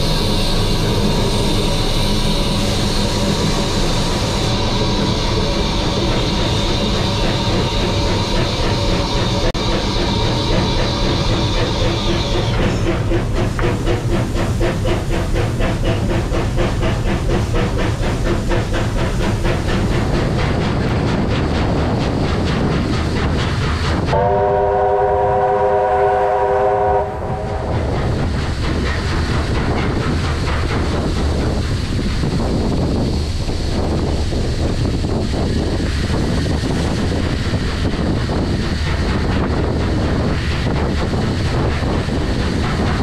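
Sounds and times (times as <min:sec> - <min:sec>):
steam locomotive chuffing: 0:00.0 - 0:43.0
train whistle: 0:24.1 - 0:27.7.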